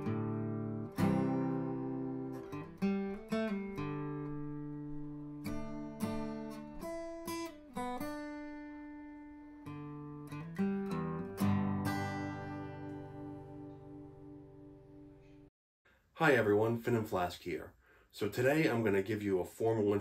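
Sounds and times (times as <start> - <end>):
acoustic guitar chords: 0.0 - 15.5.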